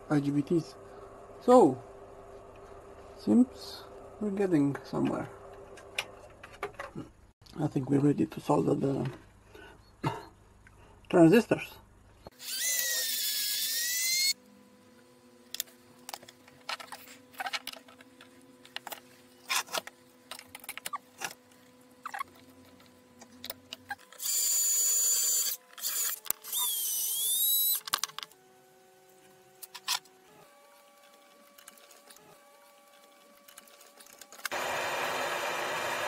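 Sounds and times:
cordless drill whining: 0:12.4 - 0:14.4, 0:24.2 - 0:27.8.

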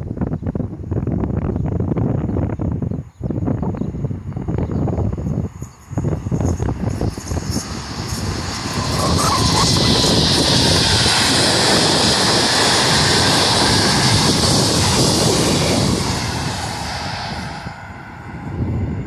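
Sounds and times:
train passing at speed: 0:05.8 - 0:19.0.

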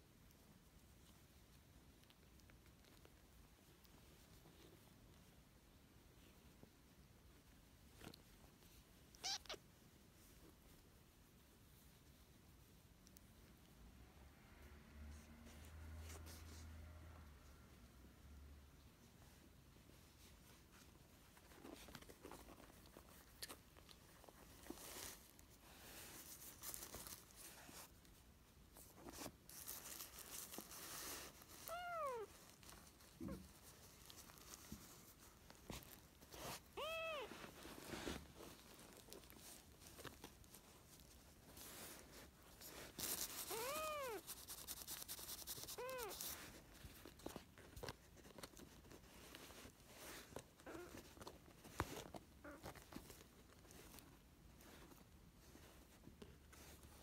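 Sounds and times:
kitten mewing: 0:09.1 - 0:09.6, 0:36.7 - 0:37.3, 0:43.4 - 0:44.2
paper and cloth rustling: 0:19.9 - 0:57.0.

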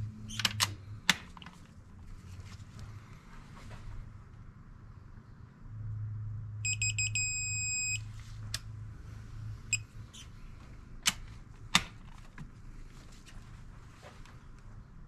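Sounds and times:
torque wrench beeping: 0:06.6 - 0:08.0.

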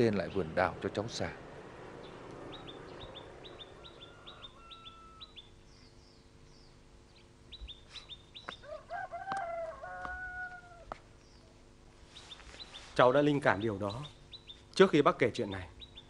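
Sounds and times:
small birds chirping: 0:00.0 - 0:08.8, 0:09.4 - 0:16.0
rooster crowing: 0:02.6 - 0:05.5, 0:08.6 - 0:11.0.

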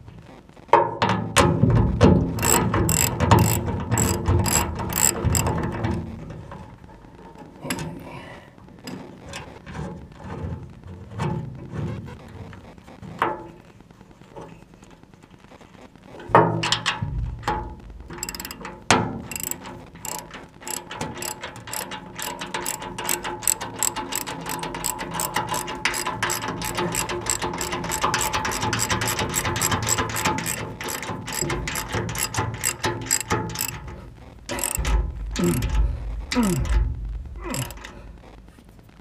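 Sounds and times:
ratchet wrench clicking: 0:02.4 - 0:05.6, 0:18.2 - 0:33.9, 0:34.5 - 0:35.8, 0:37.5 - 0:37.9
low rumbling: 0:33.8 - 0:39.0.

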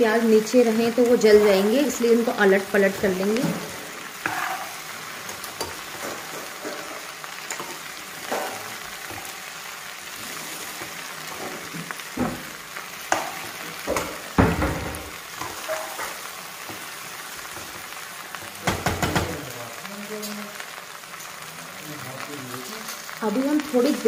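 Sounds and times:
vegetables sizzling in oil: 0:00.0 - 0:24.0
spatula scraping metal pan: 0:02.8 - 0:09.3.

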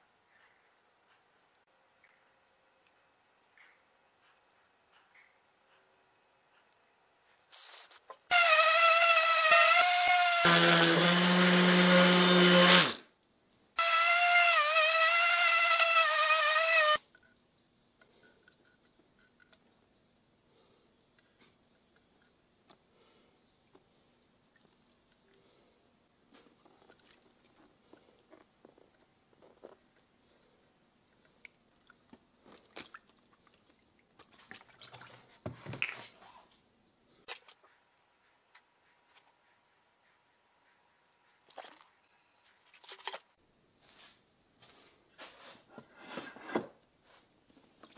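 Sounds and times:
orbital sander whining on wood: 0:10.4 - 0:13.0
wet clicks and squishes: 0:31.2 - 0:35.1.

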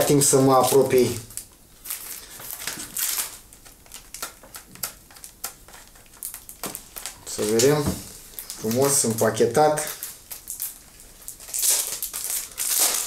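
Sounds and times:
packaging wrap crinkling: 0:00.0 - 0:13.0
small clicks and crackles: 0:00.2 - 0:07.8.

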